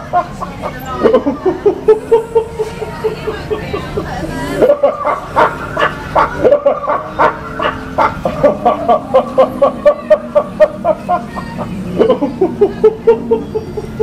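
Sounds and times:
man laughing hard: 4.6 - 13.9.

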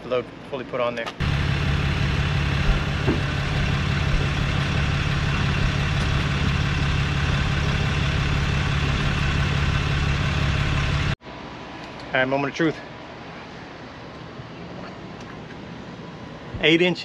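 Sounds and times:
engine running with low hum: 1.1 - 11.6.

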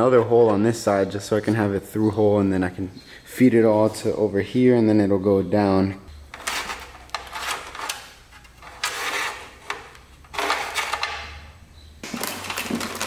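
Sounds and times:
wires scraping and rustling: 6.3 - 11.4.

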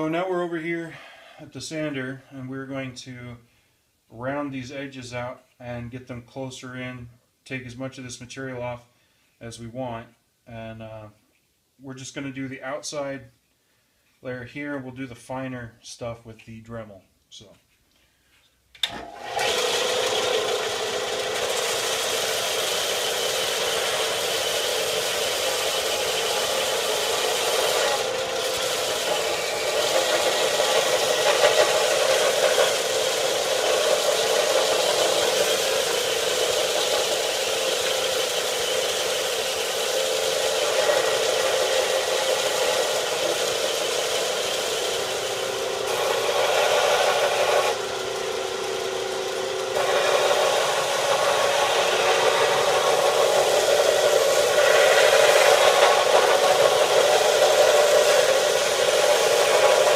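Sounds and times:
belt sander motor whir: 18.8 - 59.9
plastic being ground: 18.8 - 59.9.

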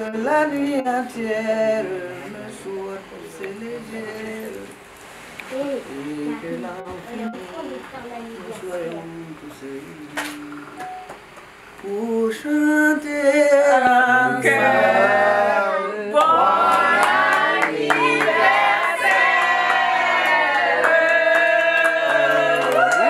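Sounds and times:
group of people singing: 0.0 - 4.7, 12.2 - 23.0
hand claps: 16.2 - 23.0.

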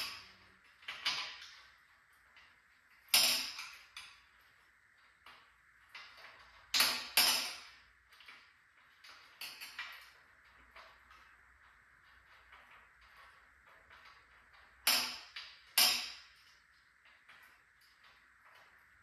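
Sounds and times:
metal parts knocking and clinking: 0.0 - 1.6, 3.0 - 4.2, 5.9 - 8.3, 13.8 - 16.4.

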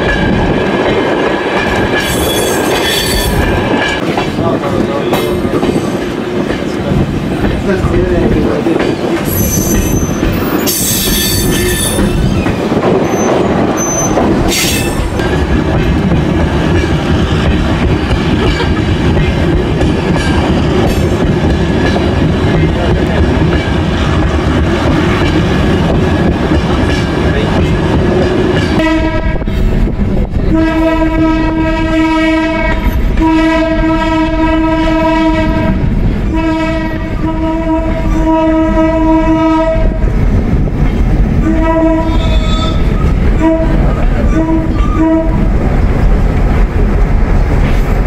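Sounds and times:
train rumble and wheel noise: 0.0 - 48.0
train horn blasts: 28.8 - 29.5, 30.5 - 40.0, 41.4 - 45.4.

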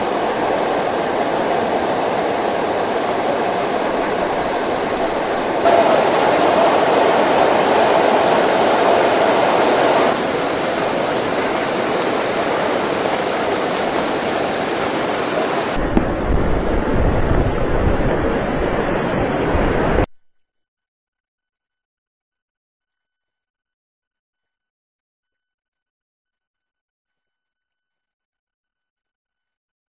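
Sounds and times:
floodwater rushing: 0.0 - 20.1.

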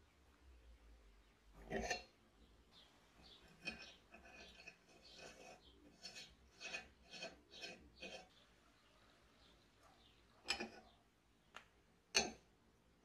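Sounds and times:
metal nut scraping on thread: 1.6 - 2.1, 3.3 - 8.3, 10.5 - 10.9.

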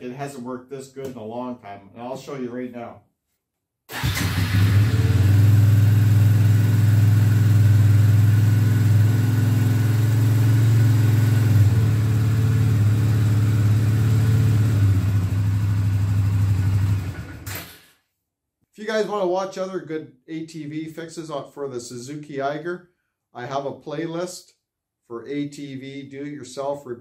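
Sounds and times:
atv engine idling: 4.0 - 17.5.

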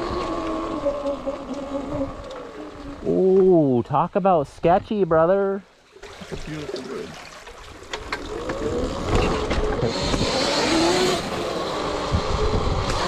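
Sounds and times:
electric motor whine: 0.0 - 3.1, 8.2 - 13.0
tyre and ground noise: 0.0 - 5.0, 7.5 - 13.0.

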